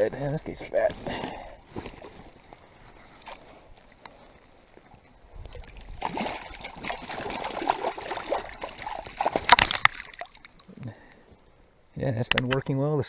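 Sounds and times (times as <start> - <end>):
water lapping: 1.3 - 11.6
fish thrashing and splashing in net: 5.9 - 10.6.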